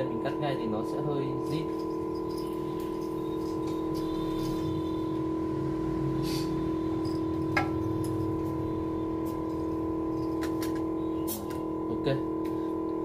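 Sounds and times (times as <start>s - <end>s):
steady electrical hum: 0.0s - 13.0s
cutting wire scratching: 1.5s - 5.1s.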